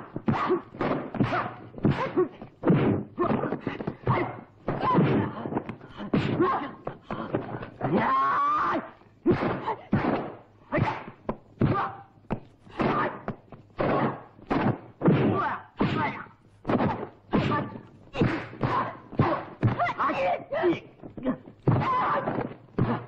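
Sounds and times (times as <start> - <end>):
punch and kick thuds: 0.0 - 7.7, 9.2 - 11.9, 12.7 - 20.0
fighters shouting and grunting: 0.0 - 12.1, 12.7 - 23.0.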